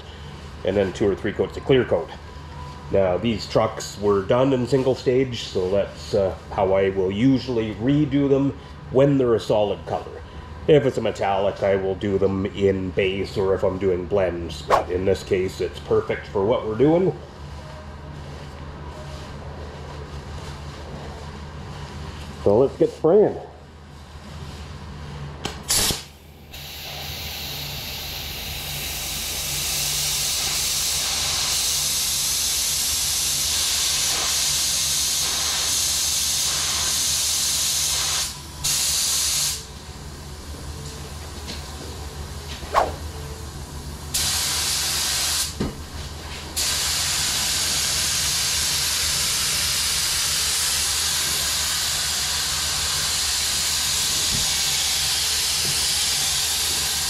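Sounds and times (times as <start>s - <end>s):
paint spray gun hissing: 25.7s - 39.7s, 44.1s - 45.6s, 46.6s - 57.0s.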